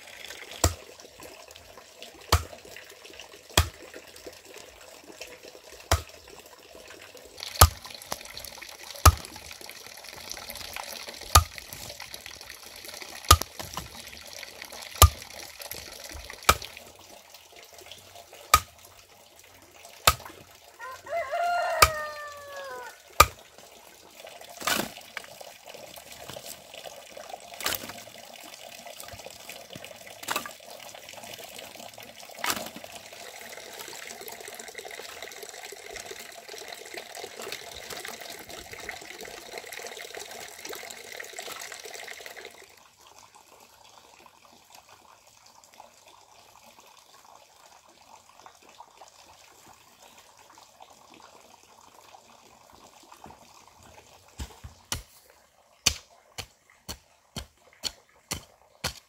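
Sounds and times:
water running: 0:00.0 - 0:42.7.

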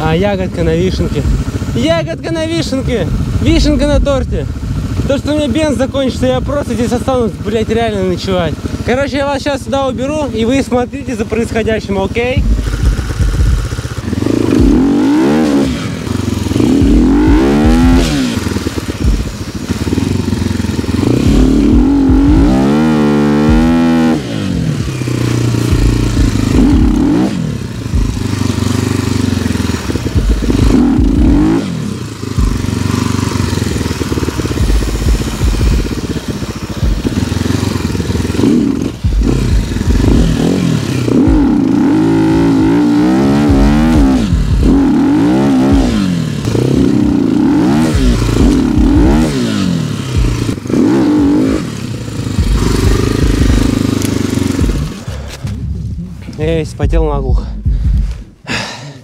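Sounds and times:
motorcycle engine revving: 0:00.0 - 0:59.0.

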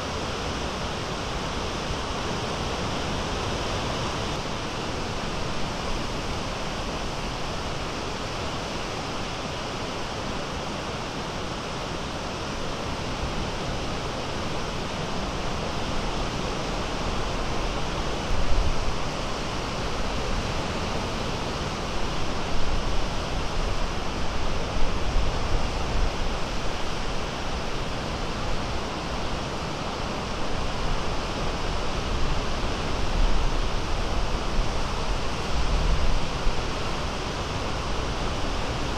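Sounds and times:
waves breaking on shore: 0:00.0 - 0:38.9
wind rumbling on microphone: 0:13.2 - 0:38.9.

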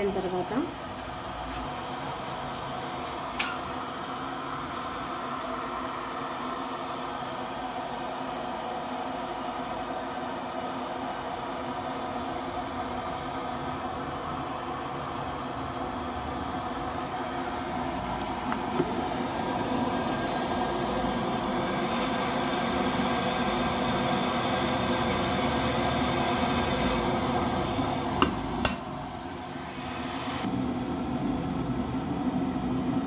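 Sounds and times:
kettle water hissing and bubbling: 0:00.0 - 0:30.6.

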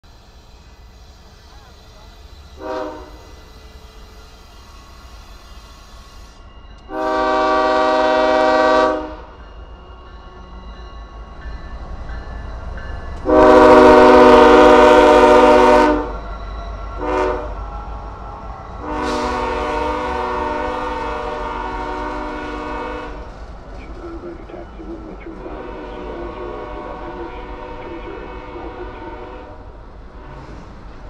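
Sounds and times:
diesel locomotives rumbling: 0:00.0 - 0:31.0
locomotive air horn blasts: 0:02.6 - 0:03.5, 0:06.9 - 0:09.3, 0:13.2 - 0:16.2, 0:17.0 - 0:17.6, 0:18.8 - 0:23.2, 0:25.4 - 0:29.6.

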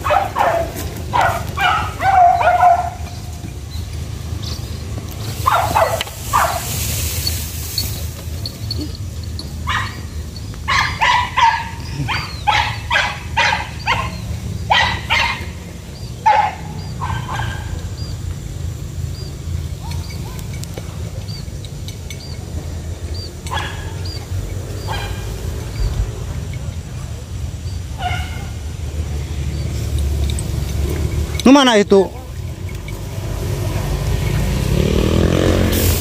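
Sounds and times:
dogs barking: 0:00.0 - 0:04.6, 0:05.2 - 0:06.9, 0:08.6 - 0:31.4.

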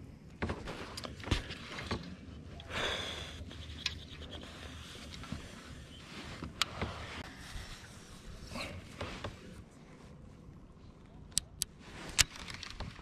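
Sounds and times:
fishing tackle clicking and rustling: 0:11.3 - 0:13.0.

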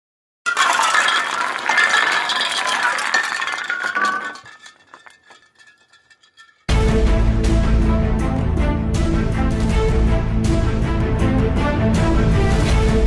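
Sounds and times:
music: 0:06.7 - 0:13.0.

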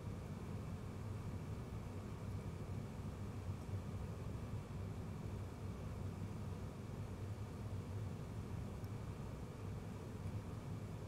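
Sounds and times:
faint hiss: 0:00.0 - 0:11.0
low background hum: 0:00.0 - 0:11.0.

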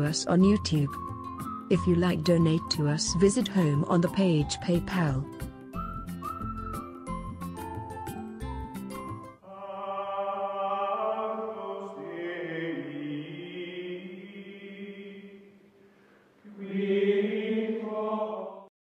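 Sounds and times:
choir-like chanting music: 0:09.4 - 0:15.6, 0:16.4 - 0:18.7.

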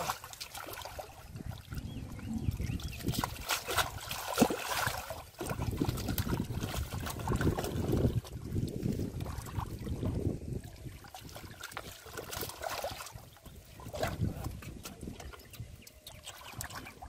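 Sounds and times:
muddy water splashing: 0:00.0 - 0:17.0
low rumble: 0:01.6 - 0:03.4.

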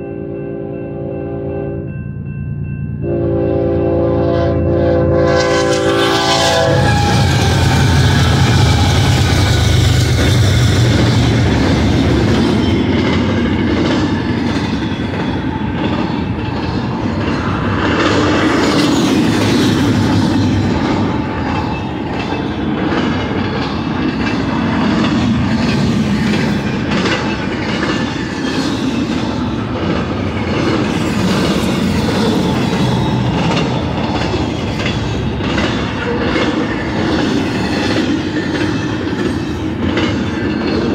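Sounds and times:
diesel locomotive drone: 0:00.0 - 0:40.9
train wheels clattering on rails: 0:05.6 - 0:40.9.

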